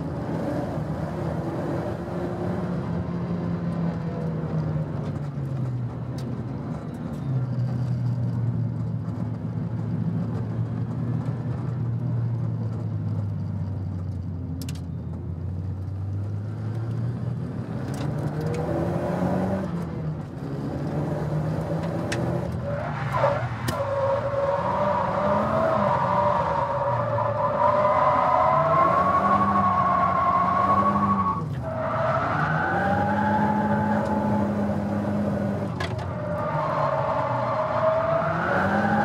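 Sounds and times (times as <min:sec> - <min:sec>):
car engine revving: 0:20.4 - 0:39.0.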